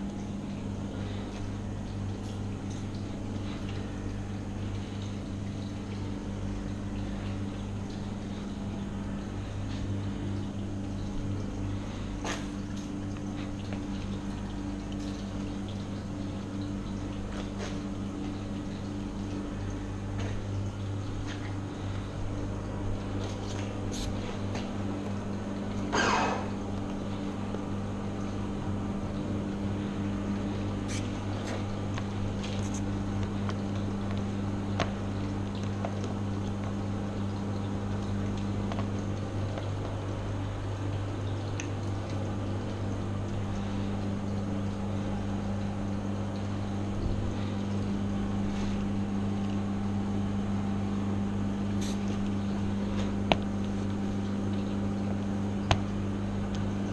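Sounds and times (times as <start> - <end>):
low machine hum: 0.0 - 56.9.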